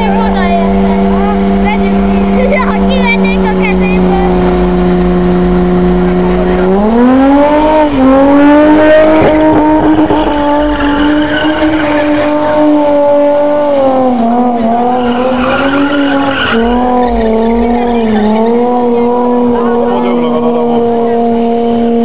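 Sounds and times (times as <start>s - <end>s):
car engine revving hard: 0.0s - 22.0s
tyres squealing: 10.1s - 12.8s, 14.6s - 20.7s.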